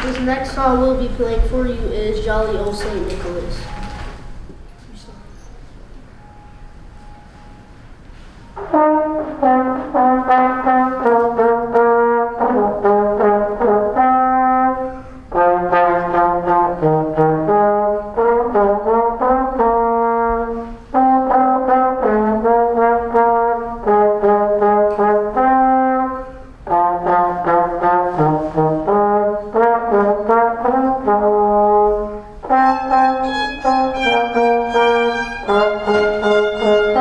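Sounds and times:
trombone and sousaphone playing: 0:08.6 - 0:37.0.

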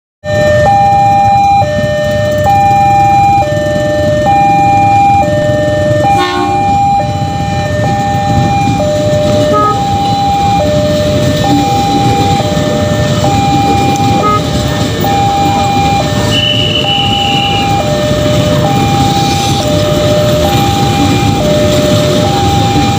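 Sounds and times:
electric train rumbling past: 0:00.3 - 0:22.9
level crossing alarm two-tone: 0:00.3 - 0:22.9
train horn honk: 0:06.0 - 0:07.3, 0:09.3 - 0:10.6, 0:14.0 - 0:14.7, 0:16.2 - 0:18.0.

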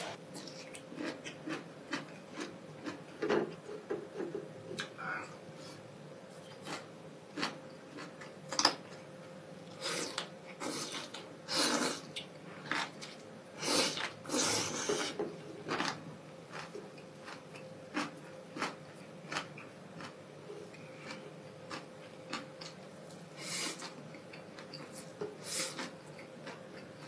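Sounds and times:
person slurping noodles: 0:09.8 - 0:12.1, 0:13.6 - 0:15.2.

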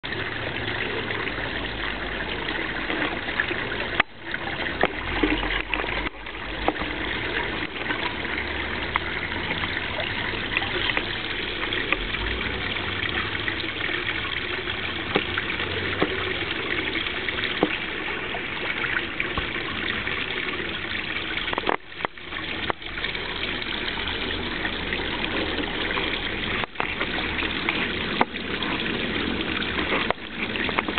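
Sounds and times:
waterfall splashing into pond: 0:00.0 - 0:30.9.

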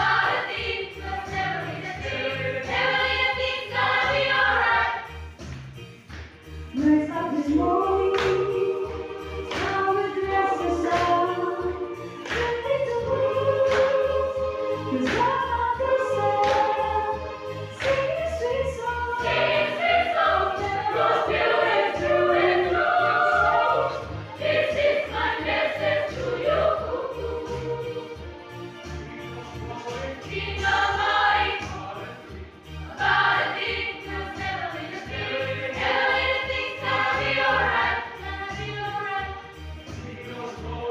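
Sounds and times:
youth choir singing: 0:00.0 - 0:05.2, 0:06.8 - 0:28.3, 0:29.5 - 0:40.9
hand claps: 0:05.4 - 0:06.6, 0:08.1 - 0:08.6, 0:09.4 - 0:09.9, 0:10.8 - 0:11.4, 0:12.1 - 0:12.7, 0:13.6 - 0:14.1, 0:14.9 - 0:15.5, 0:16.4 - 0:16.9, 0:17.8 - 0:18.2, 0:29.7 - 0:30.8, 0:31.6 - 0:31.9.

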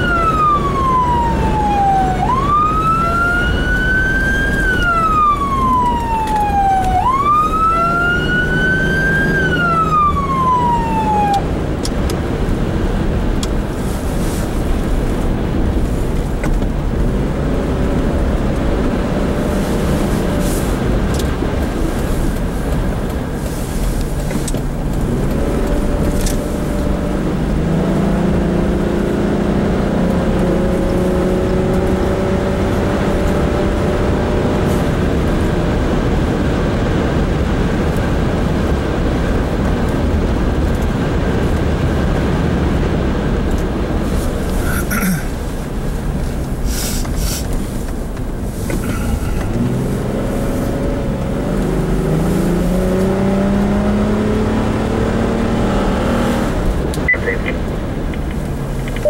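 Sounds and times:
emergency vehicle siren wailing: 0:00.0 - 0:12.4
tyre road noise: 0:00.0 - 0:59.0
vehicle engine: 0:00.0 - 0:59.0.

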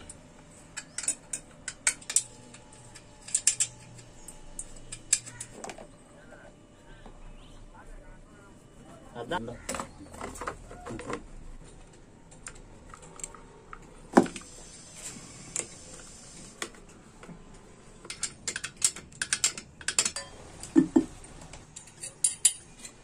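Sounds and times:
small tools and metal parts knocking: 0:00.0 - 0:05.9, 0:16.6 - 0:23.0.

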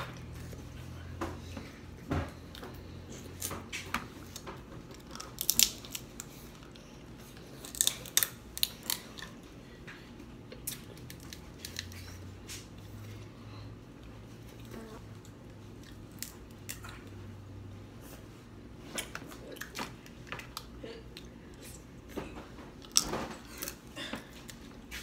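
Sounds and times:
crab shells cracking: 0:04.4 - 0:06.3, 0:07.6 - 0:09.4, 0:15.9 - 0:16.9.

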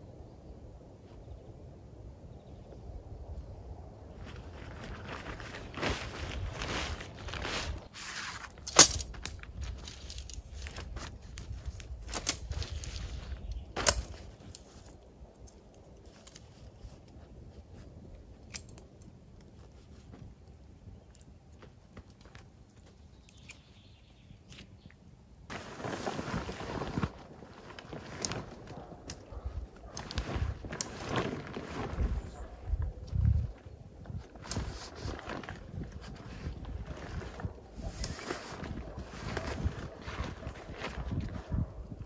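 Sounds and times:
tent fabric rustling: 0:04.1 - 0:15.0, 0:25.5 - 0:41.7.

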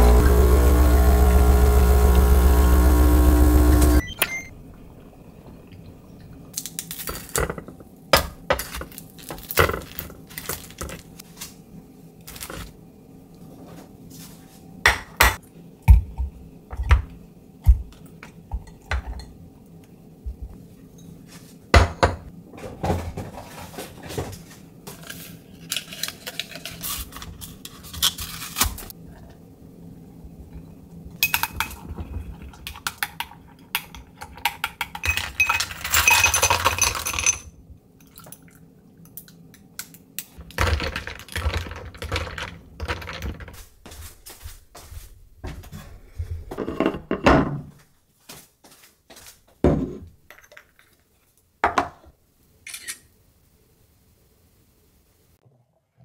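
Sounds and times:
espresso machine pump running: 0:00.0 - 0:04.0.

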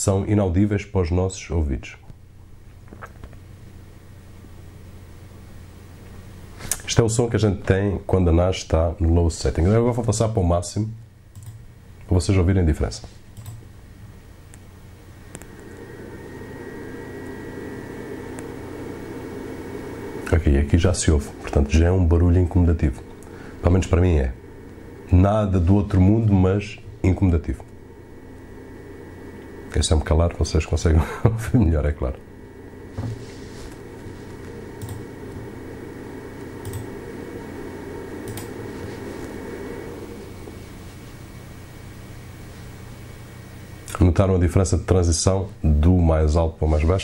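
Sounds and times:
cooling fan whirring: 0:00.0 - 0:47.0
click: 0:06.0 - 0:06.9, 0:11.3 - 0:12.1, 0:13.4 - 0:13.6, 0:15.3 - 0:15.7, 0:33.7 - 0:35.4, 0:36.4 - 0:36.9, 0:38.2 - 0:38.5
faint clicks: 0:11.3 - 0:12.1
thin whine: 0:14.1 - 0:47.0.

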